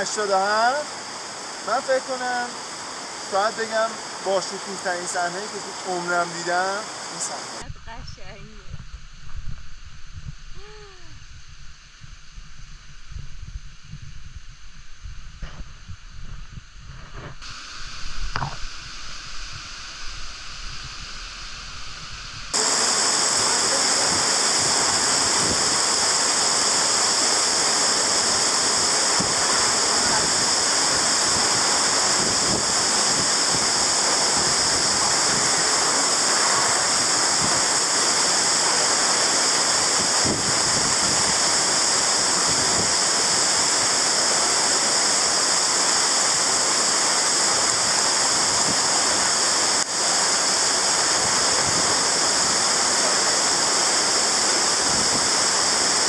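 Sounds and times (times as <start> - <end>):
waterfall rushing: 0.0 - 7.6, 22.5 - 56.0
low wind rumble: 6.5 - 56.0.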